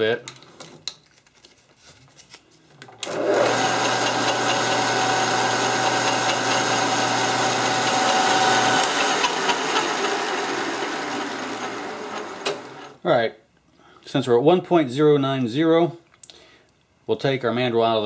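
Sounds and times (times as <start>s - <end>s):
lathe motor humming: 3.0s - 13.0s
lathe spindle noise: 3.0s - 13.0s.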